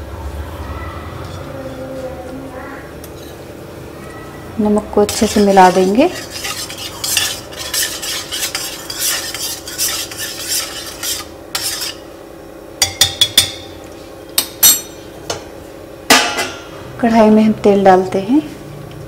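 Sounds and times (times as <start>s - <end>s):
steady low hum: 0.0s - 19.0s
spoon scraping vessel: 5.1s - 12.1s.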